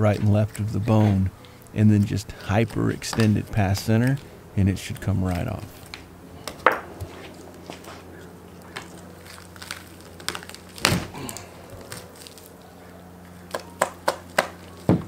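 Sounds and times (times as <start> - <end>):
wet cracks and snaps of bone: 8.6 - 12.6.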